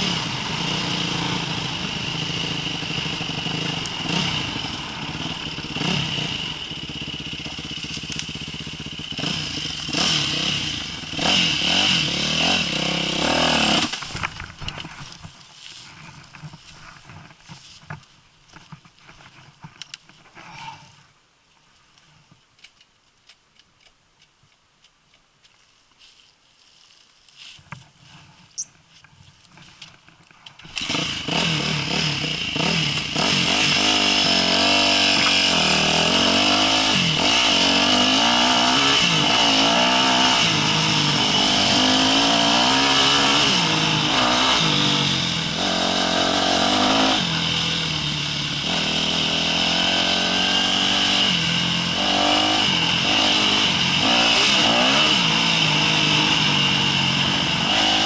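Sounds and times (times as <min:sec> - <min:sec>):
dirt bike engine revving: 0:00.0 - 0:14.5, 0:30.6 - 0:58.0.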